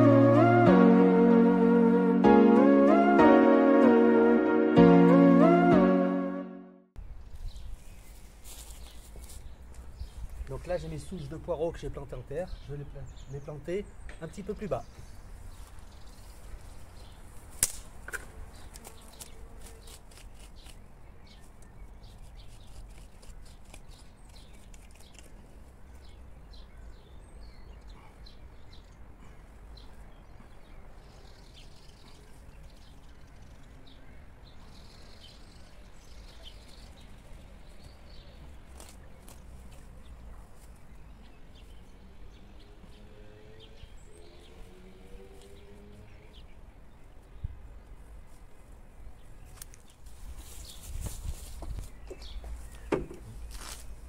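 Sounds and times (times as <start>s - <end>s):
hands rustling in grass and soil: 7.1s - 11.2s, 15.1s - 26.4s, 36.1s - 41.9s, 47.8s - 54.0s.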